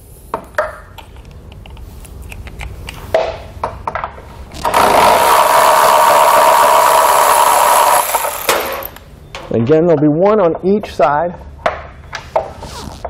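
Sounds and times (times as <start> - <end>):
electric ratchet motor whirring: 4.5 - 9.0
ratchet burst: 4.6 - 9.0.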